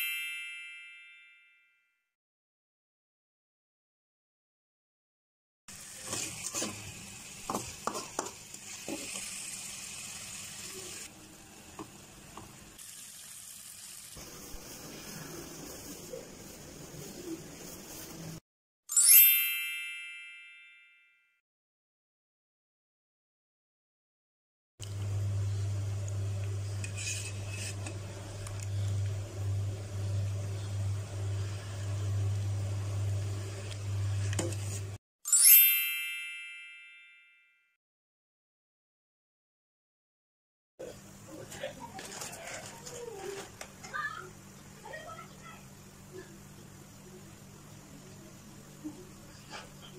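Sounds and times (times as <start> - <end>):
meat sizzling in a pan: 5.7 - 16.0
metal spatula scraping a pan: 5.8 - 9.8, 26.6 - 28.5.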